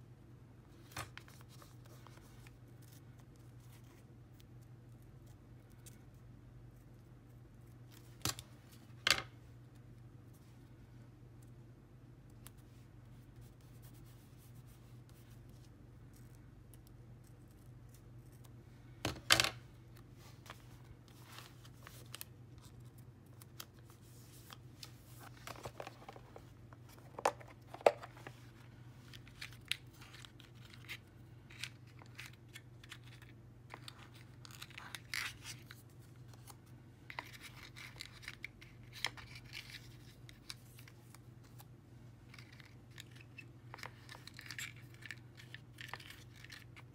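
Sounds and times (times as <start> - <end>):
paper stickers rustling: 20.1 - 41.7, 42.3 - 46.9.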